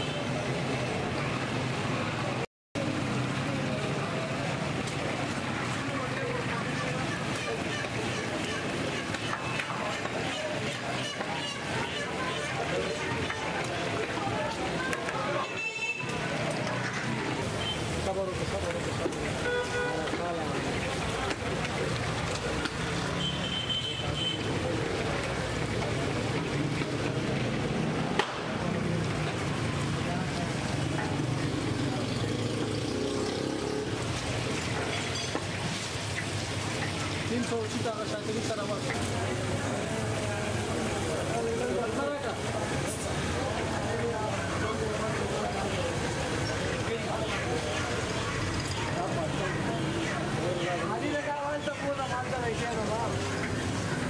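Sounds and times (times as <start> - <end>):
fish sizzling in hot oil: 28.9 - 43.3.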